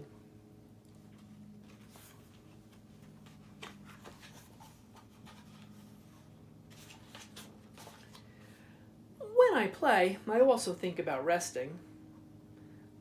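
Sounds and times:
low steady hum: 0.0s - 13.0s
book pages turning: 1.1s - 8.4s.

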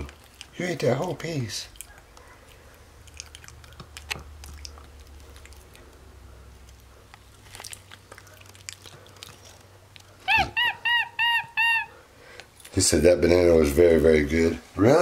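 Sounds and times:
monkey chewing and lip smacking: 0.0s - 12.8s
monkey chirping call: 10.2s - 12.0s.

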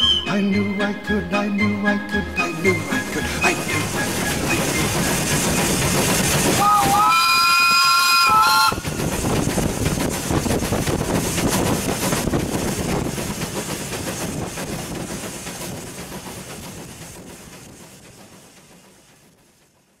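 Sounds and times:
locomotive exhaust and rail noise: 0.0s - 20.0s
steam locomotive whistle: 6.6s - 8.9s.

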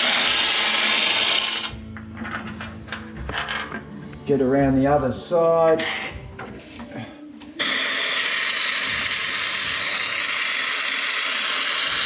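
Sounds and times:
spray gun hissing: 7.6s - 12.0s.

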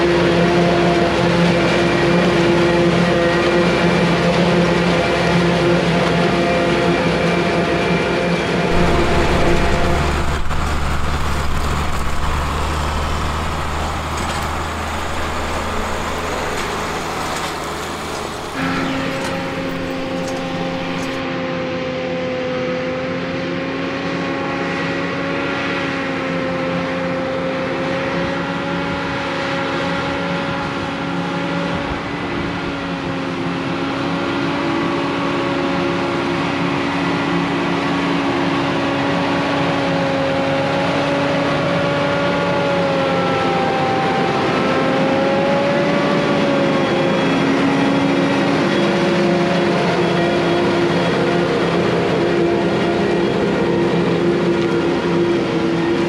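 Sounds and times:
constant rush of noise: 8.5s - 36.6s
farm machinery droning hum: 8.7s - 21.2s.

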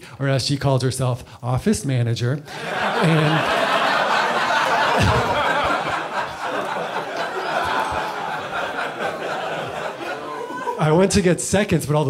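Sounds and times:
audience laughing: 2.5s - 11.1s.

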